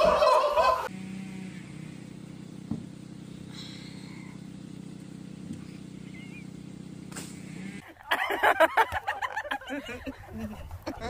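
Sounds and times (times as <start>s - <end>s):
tractor engine idling: 1.7s - 9.8s
faint bird chirps: 6.0s - 6.6s.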